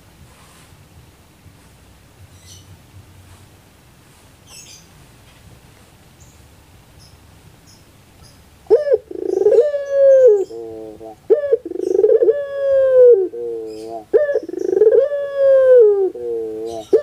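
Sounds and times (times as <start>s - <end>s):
dove cooing: 8.7s - 17.0s.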